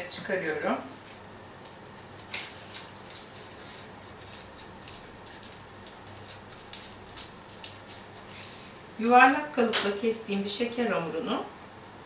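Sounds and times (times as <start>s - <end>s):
paper case crinkling: 0.4s - 8.4s.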